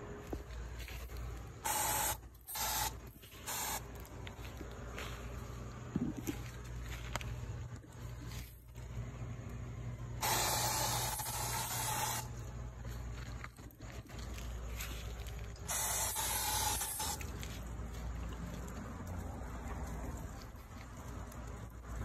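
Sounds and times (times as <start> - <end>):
aerosol can spraying: 1.6 - 3.8, 10.2 - 12.3, 15.7 - 17.3.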